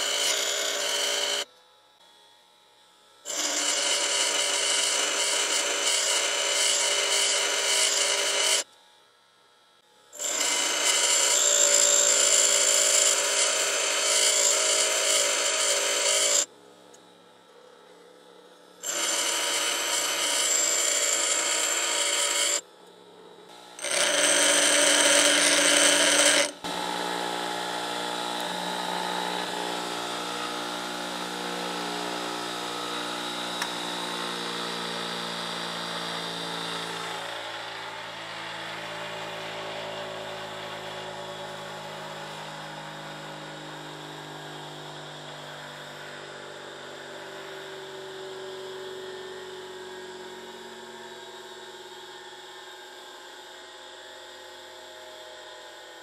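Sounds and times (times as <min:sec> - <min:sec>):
bench grinder grinding steel: 0:00.0 - 0:01.5, 0:03.3 - 0:08.7, 0:10.2 - 0:16.5, 0:18.8 - 0:22.7, 0:23.5 - 0:37.3
steady machine hum: 0:00.0 - 0:52.8.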